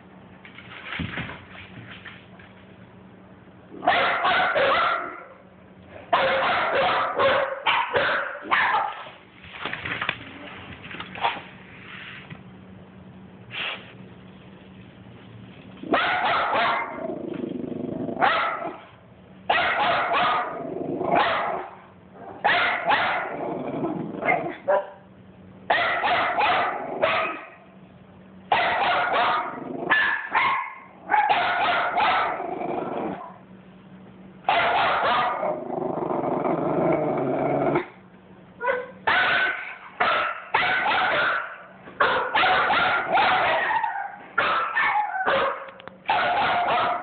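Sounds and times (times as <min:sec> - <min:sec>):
small dog barking: 0:03.8 - 0:05.4, 0:06.1 - 0:09.1, 0:15.8 - 0:17.0, 0:18.2 - 0:18.9, 0:19.5 - 0:23.4, 0:24.2 - 0:25.1, 0:25.7 - 0:27.6, 0:28.5 - 0:32.5, 0:34.4 - 0:35.6, 0:38.6 - 0:47.0.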